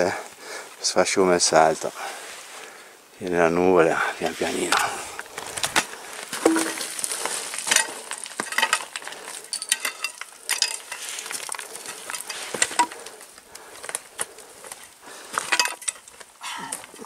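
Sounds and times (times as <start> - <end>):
crampons scraping on rock: 4.2 - 17.0
footsteps crunching on scree: 4.2 - 17.0
small stones shifting: 4.2 - 17.0.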